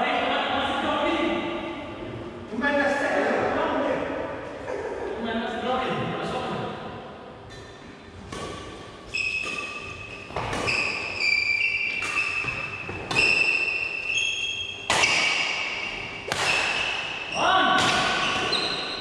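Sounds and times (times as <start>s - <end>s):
racket striking shuttlecock: 8.2s - 11.2s, 11.8s - 14.0s, 14.8s - 19.0s.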